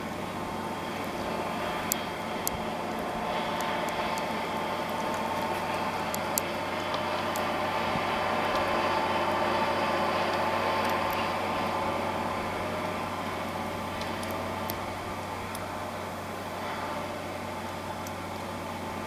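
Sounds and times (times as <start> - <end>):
rotary snow plough drone: 0.0 - 19.0
sharp clicks: 14.0 - 14.8.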